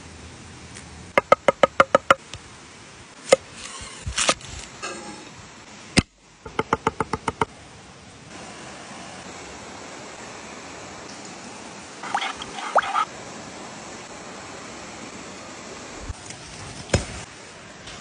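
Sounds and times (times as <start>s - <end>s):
stream water rushing: 8.3s - 16.0s.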